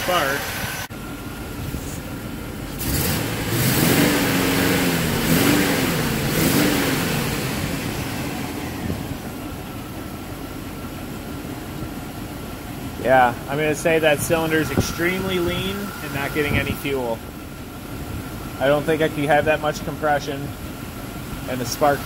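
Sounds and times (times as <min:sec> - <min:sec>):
truck engine revving and idling: 0:00.0 - 0:22.0.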